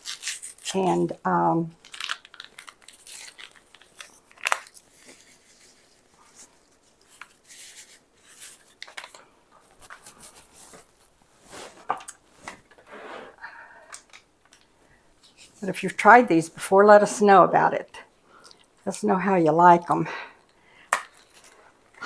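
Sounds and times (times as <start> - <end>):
paper packet crinkling and tearing: 0.0 - 8.9.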